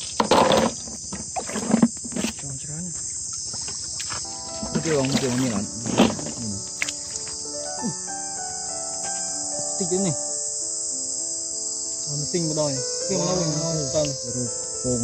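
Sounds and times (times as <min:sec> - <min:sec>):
insects chirring: 0:00.0 - 0:15.0
melody of gliding tones: 0:04.2 - 0:15.0.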